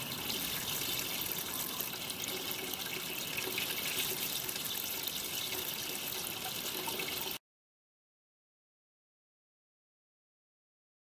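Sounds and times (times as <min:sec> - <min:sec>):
water pouring onto metal: 0:00.0 - 0:07.4.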